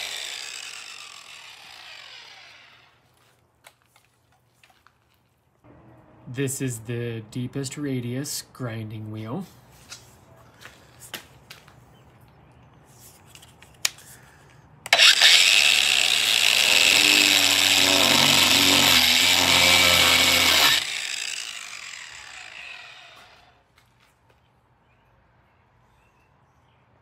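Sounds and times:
angle grinder grinding wood: 0:00.0 - 0:03.3, 0:14.9 - 0:23.6.

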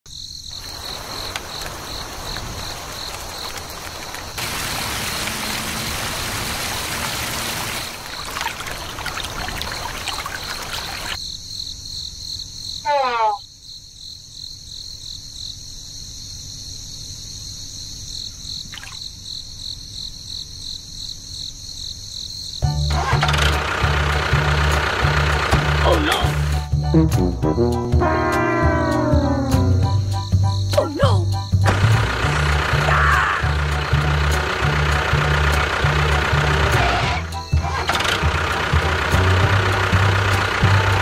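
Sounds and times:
crickets chirping: 0:00.1 - 0:23.0, 0:24.2 - 0:40.8
running water: 0:00.6 - 0:11.2.

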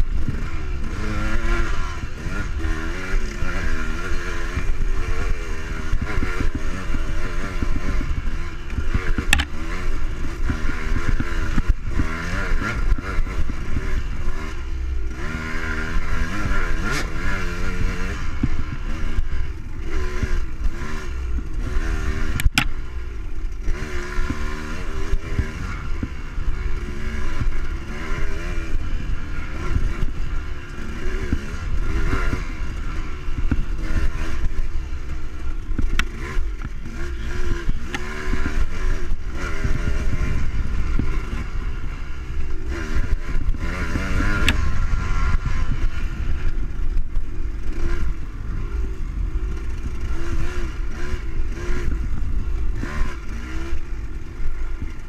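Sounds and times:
dirt bike engine revving: 0:00.0 - 0:55.0
bumps and wind on microphone: 0:25.2 - 0:55.0.

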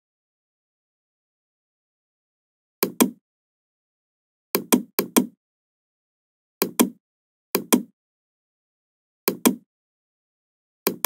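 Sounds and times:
computer mouse button clicking: 0:02.8 - 0:03.2, 0:06.6 - 0:07.0, 0:09.3 - 0:09.6.

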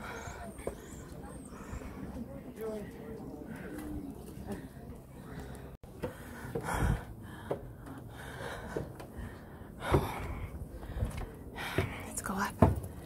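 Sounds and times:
footsteps on wooden stairs: 0:04.5 - 0:13.0.

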